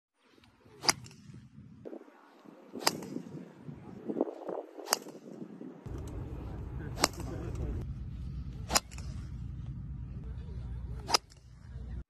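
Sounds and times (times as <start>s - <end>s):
golf club striking ball: 2.7s - 3.5s, 4.8s - 7.7s, 8.6s - 9.4s.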